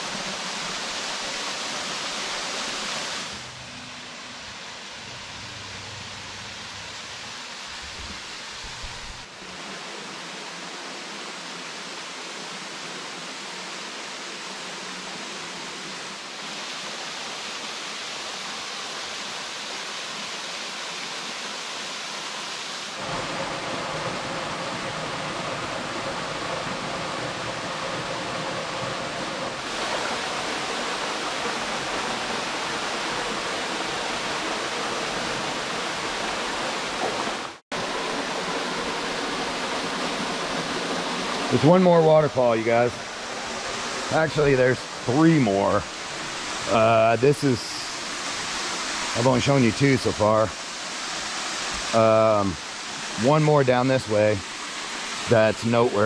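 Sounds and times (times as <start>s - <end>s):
waterfall rushing: 0.0s - 56.0s.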